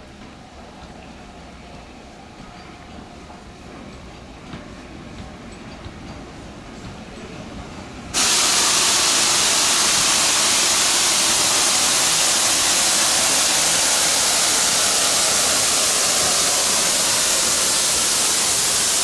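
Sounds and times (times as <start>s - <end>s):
steam locomotive venting steam: 8.2s - 19.0s.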